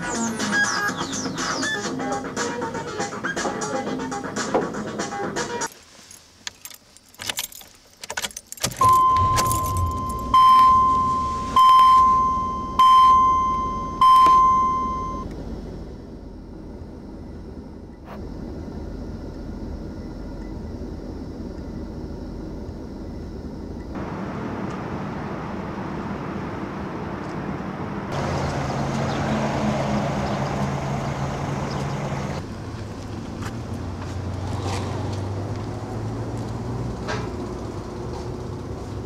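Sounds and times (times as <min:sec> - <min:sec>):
traffic noise: 0:00.0 - 0:39.0
car engine rumble: 0:05.6 - 0:39.0
car keys jangling: 0:05.7 - 0:10.3
car warning chime: 0:08.8 - 0:15.3.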